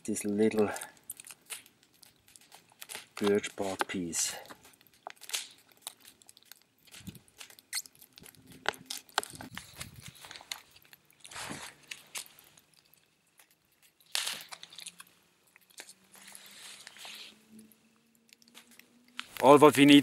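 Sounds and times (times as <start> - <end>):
bark crackling when bent: 0.2 - 15.0.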